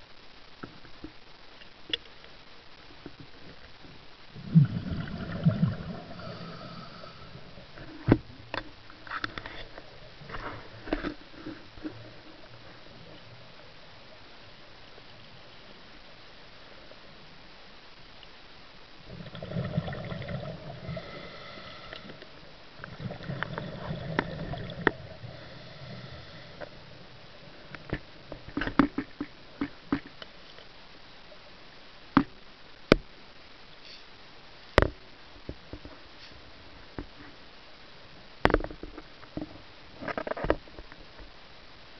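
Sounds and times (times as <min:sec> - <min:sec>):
underwater breath bubbling: 0:04.4 - 0:08.0, 0:19.1 - 0:26.8
sharp underwater clicks and knocks: 0:27.7 - 0:30.7, 0:38.4 - 0:41.3.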